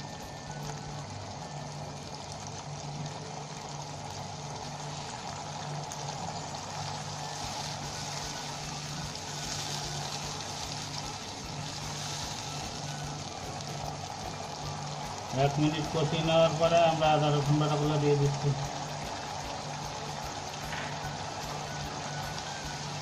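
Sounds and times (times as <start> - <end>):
paste sizzling in hot oil: 0.0 - 23.0
spatula stirring in a pan: 4.1 - 15.3.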